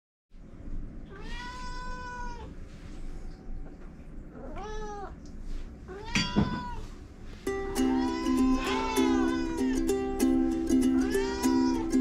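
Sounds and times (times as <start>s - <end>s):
cat meowing: 1.1s - 2.6s, 4.3s - 5.2s, 5.9s - 6.9s, 7.8s - 9.9s, 11.0s - 12.0s.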